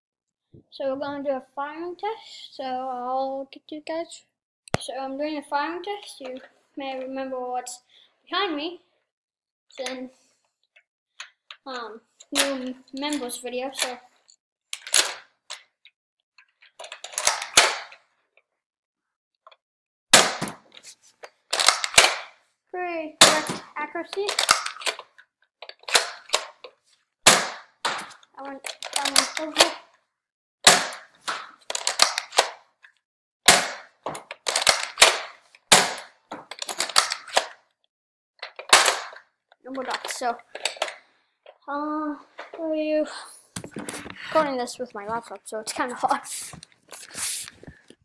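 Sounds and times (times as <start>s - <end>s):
toy blaster plastic clacks and pops: 12.2s - 14.0s, 14.8s - 15.8s, 16.6s - 18.1s, 20.2s - 22.4s, 23.2s - 30.0s, 30.6s - 37.8s, 38.4s - 41.6s
toy blaster priming clicks: 34.3s - 35.3s.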